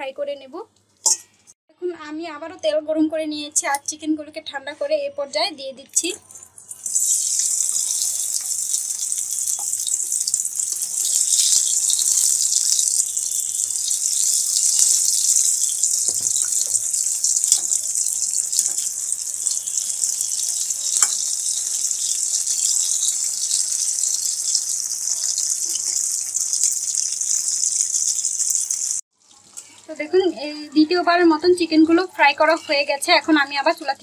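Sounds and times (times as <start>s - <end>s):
oil sizzling: 6.4s - 30.3s.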